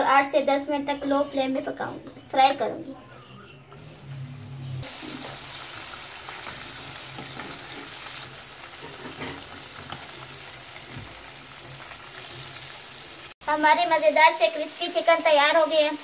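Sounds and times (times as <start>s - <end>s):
chicken deep-frying in oil: 3.7s - 16.0s.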